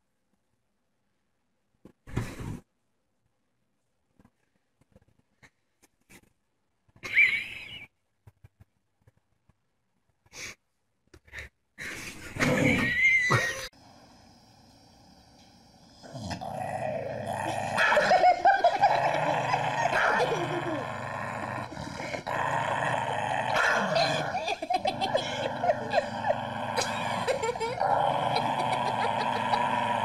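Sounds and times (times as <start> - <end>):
dog growling and whining: 15.8 - 30.0.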